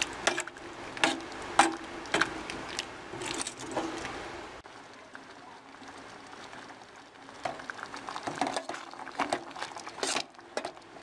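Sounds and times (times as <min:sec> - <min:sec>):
soft bubbling of stewed beans: 0:00.0 - 0:11.0
metal spoon scraping pot: 0:10.0 - 0:10.7.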